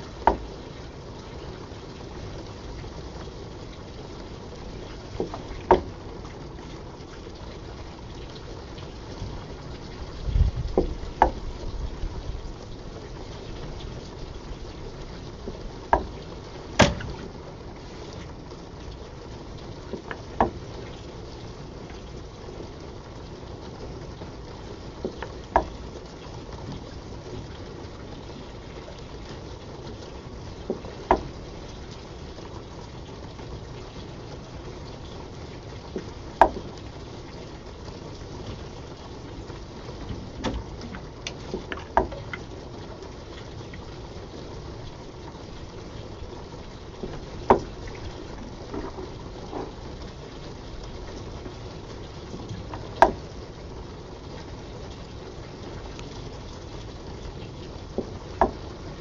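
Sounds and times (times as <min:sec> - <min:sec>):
steam bubbling and rushing in pipe: 0:00.0 - 0:59.0
sharp pump knocks: 0:16.8 - 0:17.2.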